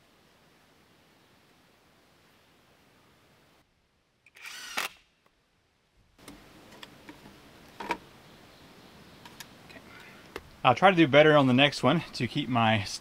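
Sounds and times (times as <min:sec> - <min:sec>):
cordless drill driving screw into wood: 0:04.3 - 0:05.1.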